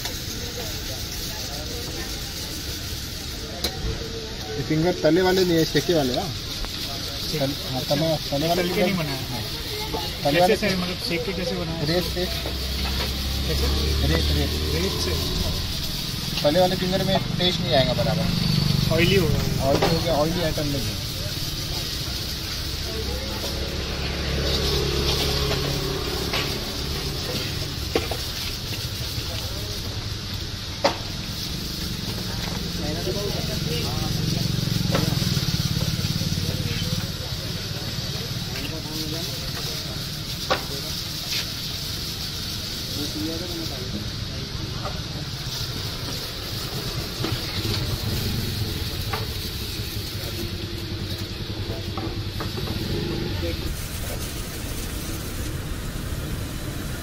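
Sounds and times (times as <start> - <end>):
even hiss: 0.0 - 57.0
passing traffic engine hum: 4.3 - 57.0.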